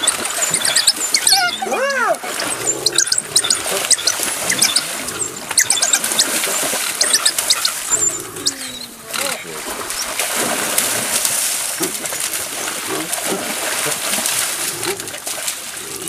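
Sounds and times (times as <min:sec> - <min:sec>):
wild dog squeal: 0:00.0 - 0:10.2
wild dogs chirping: 0:00.0 - 0:13.3.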